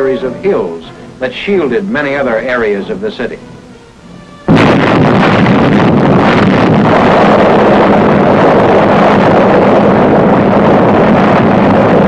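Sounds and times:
loud rumbling roar: 4.5s - 12.0s.

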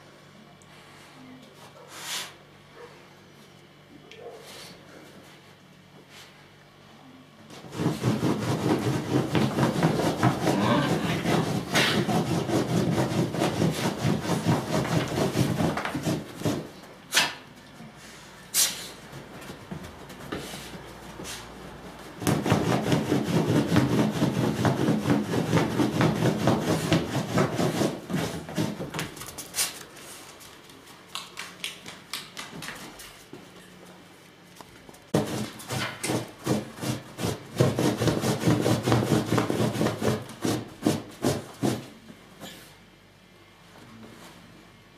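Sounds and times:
dogs growling and scuffling: 7.6s - 12.1s.

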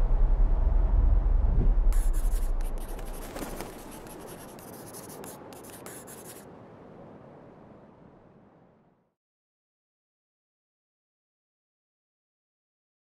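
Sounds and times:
pen scratching on paper: 2.0s - 6.4s.

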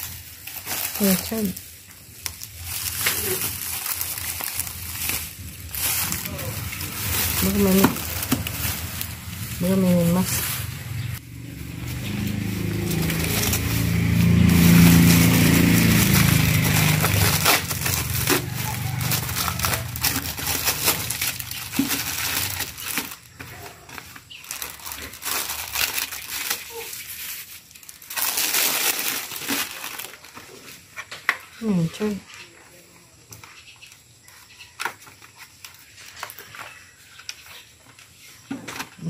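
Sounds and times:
plastic bag rustling and crinkling: 0.0s - 31.5s, 34.2s - 39.0s.

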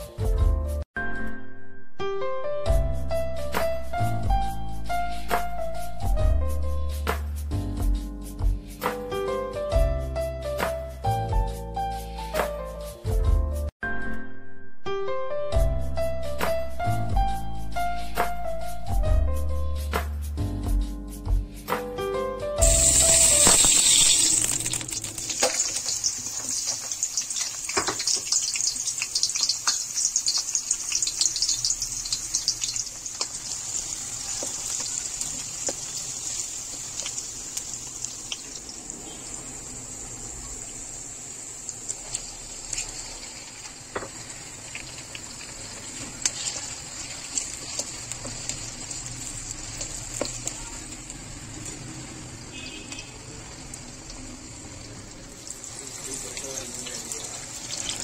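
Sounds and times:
onions sizzling in hot oil: 22.6s - 58.0s.

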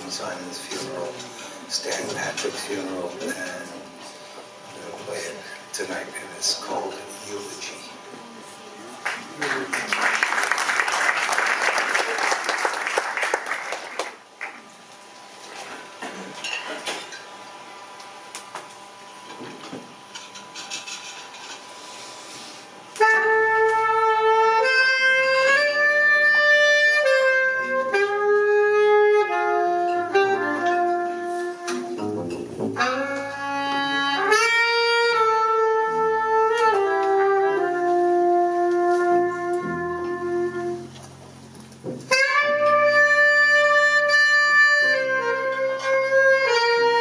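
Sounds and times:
saxophone and trumpet jazz melody: 22.9s - 47.0s.

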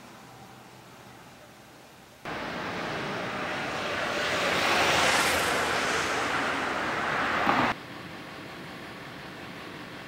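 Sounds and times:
vehicle passing by: 2.3s - 7.8s.

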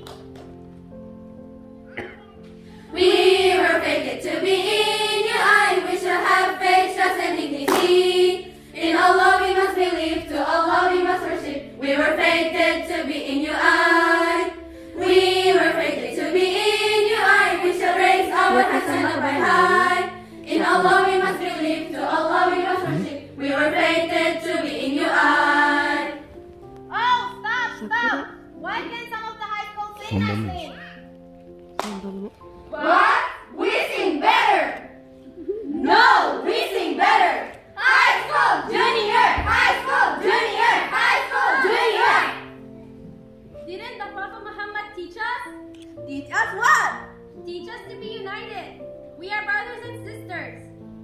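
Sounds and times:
girls' choir singing: 2.9s - 26.4s, 32.7s - 34.8s, 35.8s - 42.6s.

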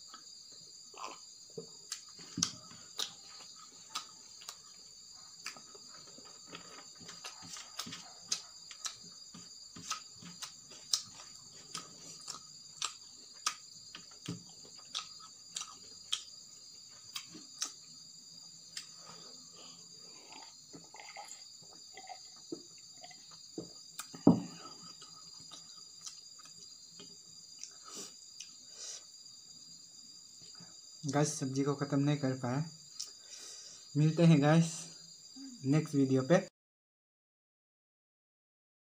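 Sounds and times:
person chewing food: 0.0s - 18.0s, 18.6s - 29.0s
crickets chirping: 0.0s - 36.5s
knock on plate: 24.2s - 24.6s.

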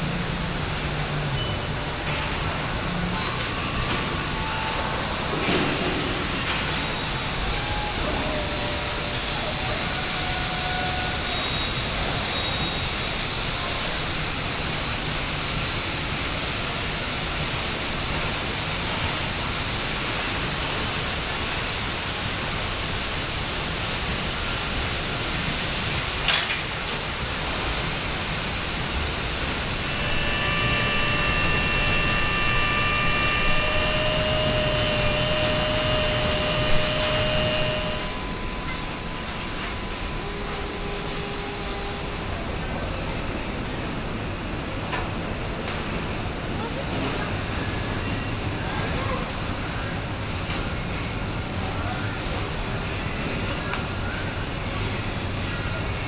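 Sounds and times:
machine whining tones: 0.1s - 13.0s, 27.8s - 43.2s
machinery rush: 28.0s - 43.1s.

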